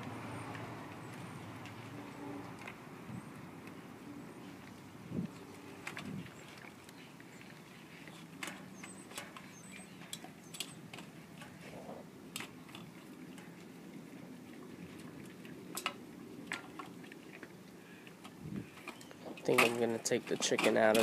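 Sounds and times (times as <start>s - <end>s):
dog crunching bone in metal bowl: 19.4s - 21.0s.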